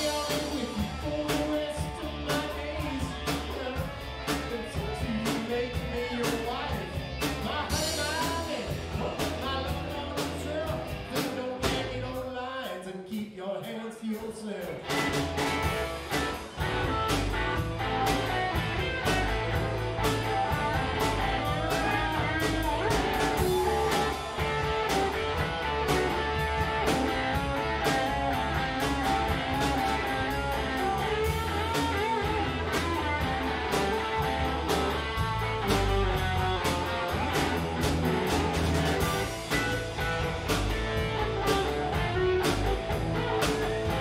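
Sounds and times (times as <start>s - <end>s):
electric guitar: 0.0s - 12.2s, 14.8s - 44.0s
bass guitar: 0.0s - 12.7s, 14.2s - 44.0s
drum beat: 14.8s - 44.0s.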